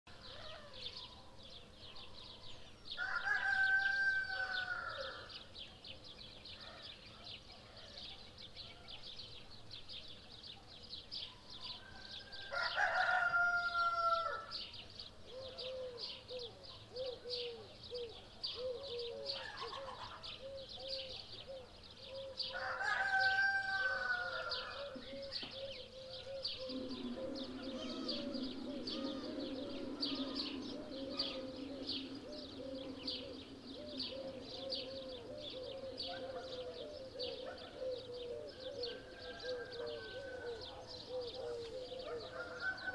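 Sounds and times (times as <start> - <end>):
small birds chirping: 0.1 - 42.9
rooster crowing: 3.0 - 5.3, 11.8 - 14.6, 22.5 - 25.0, 26.6 - 35.3, 38.9 - 40.9, 42.0 - 42.9
soft low bird calls: 11.5 - 42.9.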